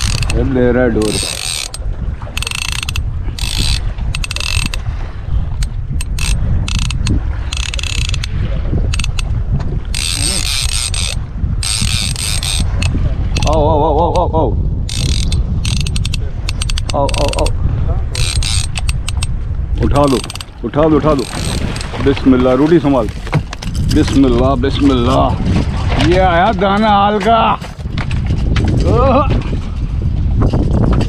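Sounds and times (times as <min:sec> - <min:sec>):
reel ratchet clicking: 0:00.0 - 0:00.4, 0:01.0 - 0:01.8, 0:02.4 - 0:04.8, 0:05.6 - 0:09.3, 0:09.9 - 0:13.6, 0:14.9 - 0:17.5, 0:18.2 - 0:21.9.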